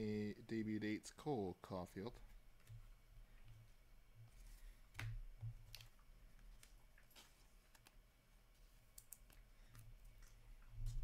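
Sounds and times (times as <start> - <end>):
faint low hum: 0.0 - 11.0
trading cards flipped and clicking: 4.9 - 8.0.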